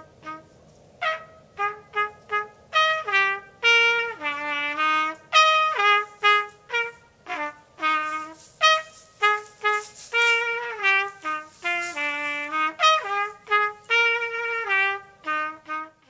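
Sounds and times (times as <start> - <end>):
solo trumpet melody: 0.0 - 16.0.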